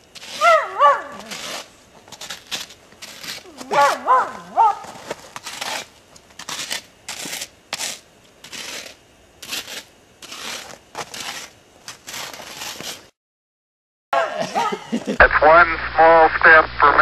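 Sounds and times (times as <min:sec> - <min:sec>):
stick scraping crusty snow: 0:00.0 - 0:13.1.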